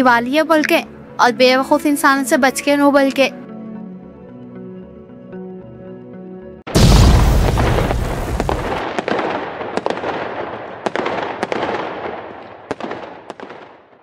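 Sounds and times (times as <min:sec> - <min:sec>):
soft background music: 0:00.0 - 0:06.6
sharp bangs: 0:06.7 - 0:13.7
firecracker blast: 0:06.7 - 0:13.9
firework crackling: 0:06.8 - 0:13.6.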